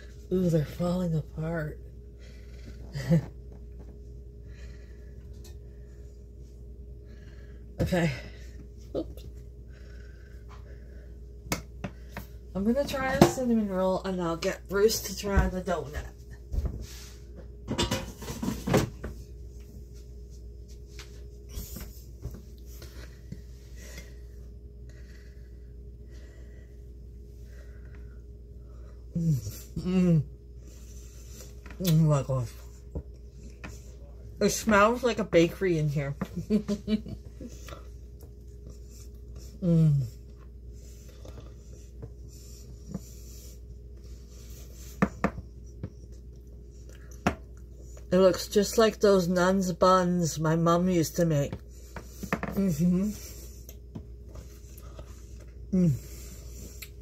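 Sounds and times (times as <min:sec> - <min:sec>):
faint steady hum: 0:00.0 - 0:57.0
woman humming mmm: 0:29.1 - 0:30.4, 0:39.6 - 0:40.2, 0:55.7 - 0:56.2.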